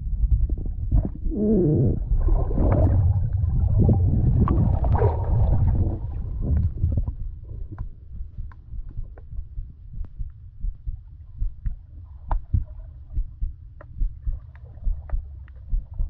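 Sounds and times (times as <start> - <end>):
low underwater rumbling: 0.0 - 16.0
bubbling: 0.5 - 8.0.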